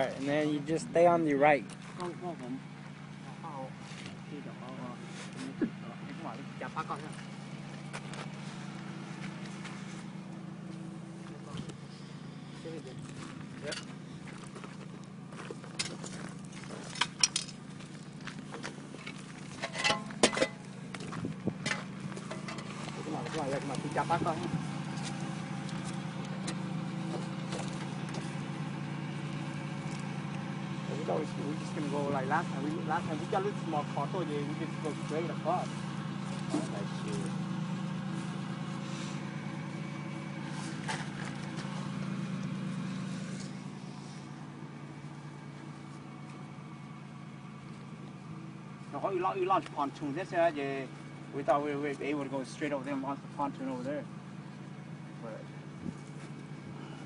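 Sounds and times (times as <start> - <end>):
low steady hum: 0.0 - 49.0
vehicle engine idling: 0.0 - 57.0
metal hardware clinking: 19.6 - 20.6.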